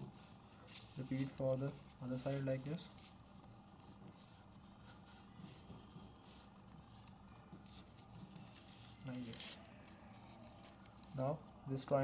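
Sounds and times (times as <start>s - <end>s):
paper rustling and crinkling: 0.0s - 12.0s
fingers tapping on paper: 4.9s - 8.7s.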